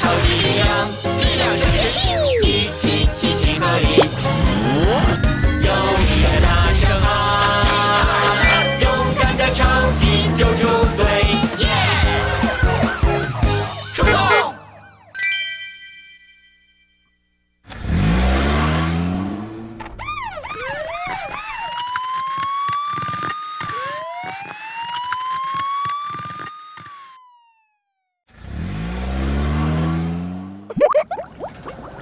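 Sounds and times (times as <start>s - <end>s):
cartoon car engine rumbling: 0.0s - 14.6s, 17.7s - 21.4s
police siren wailing: 11.9s - 15.1s, 19.8s - 28.1s.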